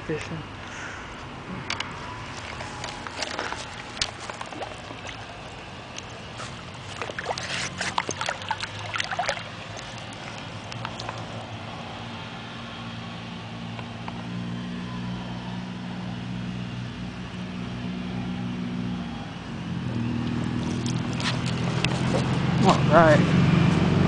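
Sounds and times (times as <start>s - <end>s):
low motor hum: 1.2s - 24.0s
fish splashing in water: 2.0s - 11.8s, 20.0s - 22.6s.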